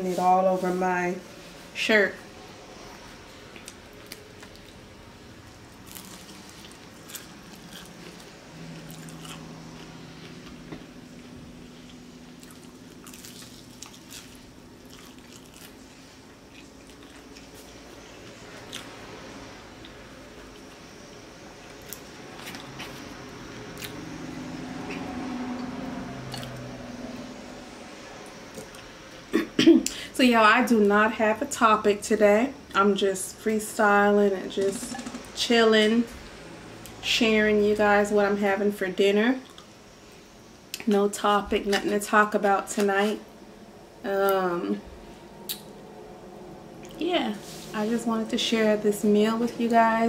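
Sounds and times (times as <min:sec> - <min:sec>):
low steady hum: 0:00.0 - 0:50.0
chewing noodles: 0:05.8 - 0:10.5, 0:11.8 - 0:18.9, 0:26.3 - 0:26.6.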